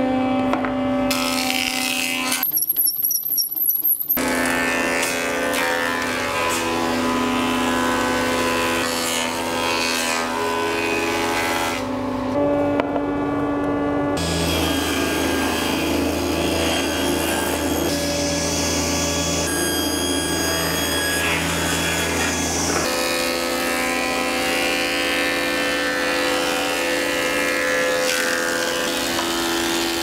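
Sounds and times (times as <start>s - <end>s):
sanding machine grinding boards: 14.2s - 30.0s.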